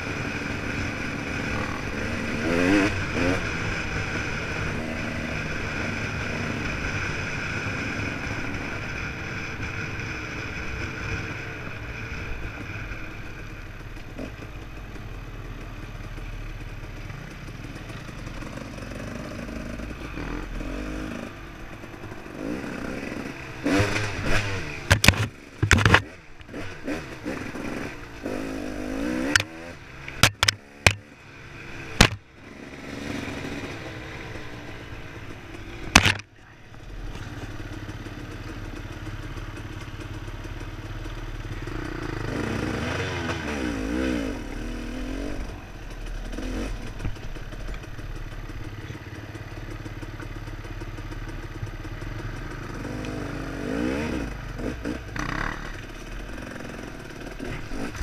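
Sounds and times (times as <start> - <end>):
dirt bike engine revving: 0.0 - 11.4, 18.2 - 21.4, 22.1 - 34.9, 35.5 - 36.3, 41.6 - 47.5, 52.4 - 58.0
sharp knocks and clatters: 24.8 - 26.1, 30.1 - 31.1, 32.0 - 32.2, 35.9 - 36.3.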